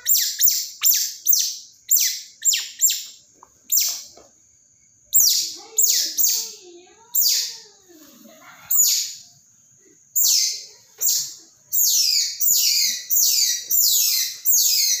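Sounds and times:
baby otter squealing: 0.0 - 3.1.

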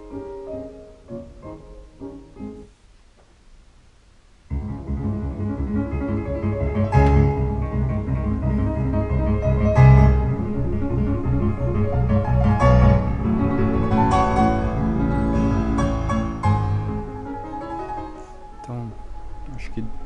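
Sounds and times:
music with deep bass: 4.5 - 20.0
sparse piano notes: 4.5 - 20.0.

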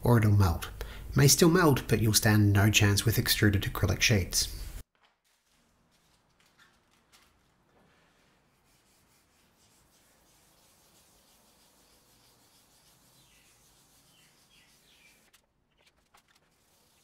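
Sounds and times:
gloved hands rubbing: 4.7 - 17.0.

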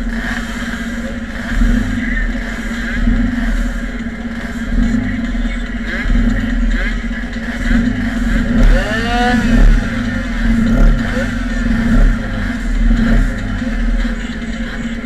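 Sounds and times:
engine note rising and falling: 0.0 - 15.0
motorcycle engines idling: 0.0 - 15.0.

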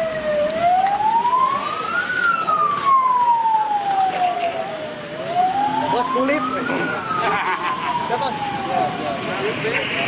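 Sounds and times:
police siren wailing: 0.0 - 9.7.

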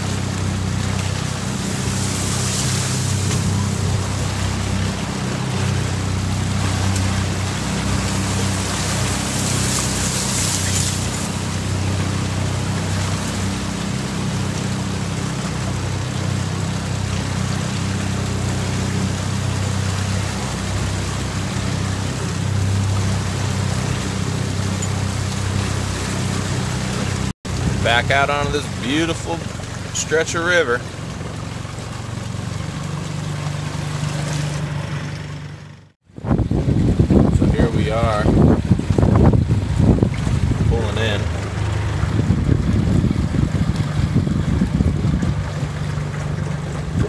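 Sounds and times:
outboard motor humming: 0.0 - 47.0
reeds brushing past boat: 0.0 - 47.0.

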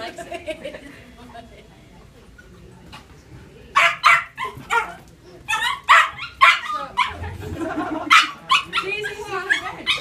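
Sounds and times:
puppies barking: 3.8 - 10.0.

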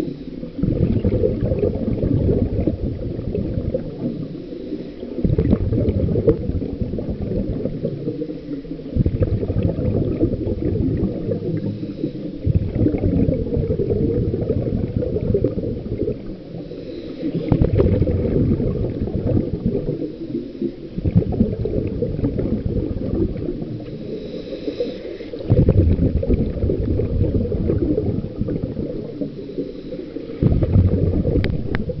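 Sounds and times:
faint hiss of inhalation: 0.0 - 0.6, 4.0 - 5.2, 8.0 - 9.0, 11.4 - 12.6, 16.5 - 17.6, 19.9 - 21.0, 23.8 - 25.5, 29.1 - 30.4
exhaled bubbles burbling underwater: 0.0 - 32.0.

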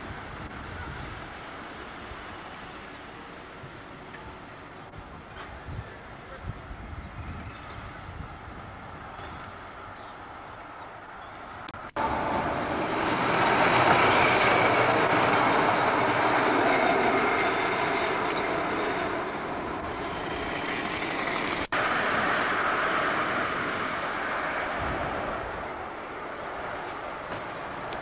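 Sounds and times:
train wheels rumbling on rails: 6.6 - 28.0.

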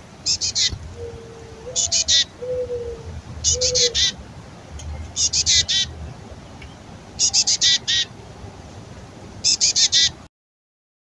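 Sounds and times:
chickadee raspy begging call: 0.2 - 4.2, 5.1 - 6.0, 7.2 - 8.2, 9.4 - 10.2.

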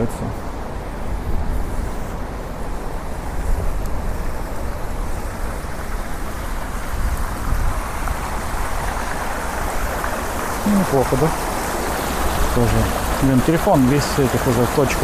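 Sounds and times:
fountain jets splashing: 0.0 - 15.0
low rumble of street traffic: 0.0 - 15.0.

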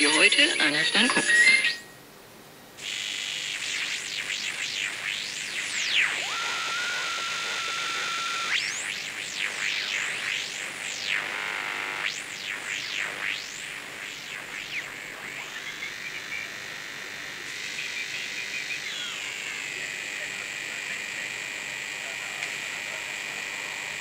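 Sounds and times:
radio heterodyne whistles: 2.8 - 19.9
radio static hiss: 2.8 - 24.0.

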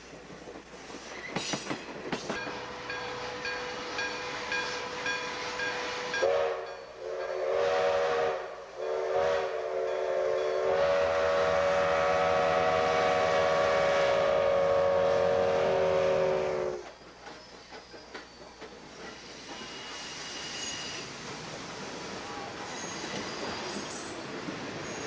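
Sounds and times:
steam locomotive running noise: 0.0 - 25.0
steam whistle chord blasts: 2.5 - 16.8.

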